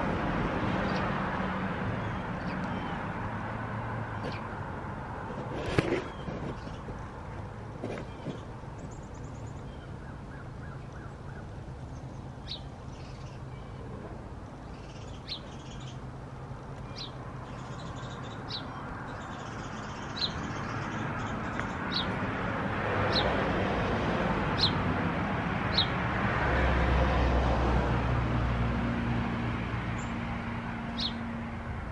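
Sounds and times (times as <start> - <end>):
small bird chirping: 5.8 - 6.9, 7.8 - 13.9, 14.7 - 16.0, 16.8 - 22.1.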